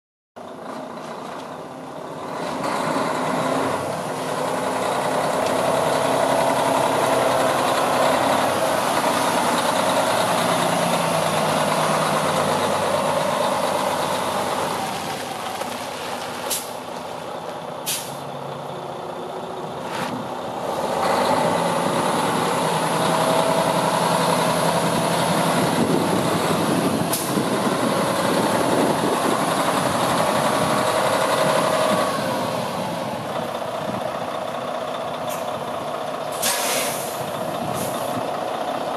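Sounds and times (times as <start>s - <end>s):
diesel engine idling: 0.4s - 38.9s
air brake hisses: 17.8s - 18.2s, 36.3s - 38.1s.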